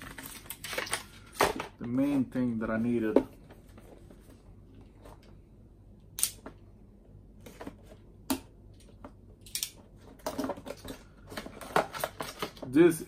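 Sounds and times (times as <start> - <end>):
plastic and cardboard packaging crinkling: 0.0 - 3.1, 10.1 - 13.0.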